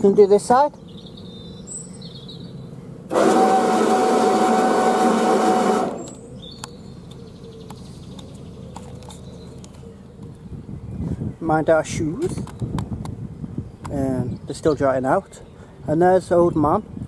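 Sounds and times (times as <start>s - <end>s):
bow thruster whine: 3.1s - 6.4s.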